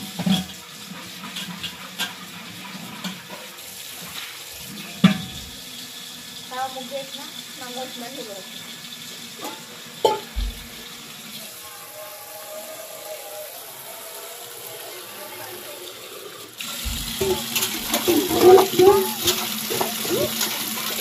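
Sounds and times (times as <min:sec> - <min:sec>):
tap water streaming into metal pot: 0:00.0 - 0:21.0
ringing tone from metal pot: 0:17.2 - 0:19.4.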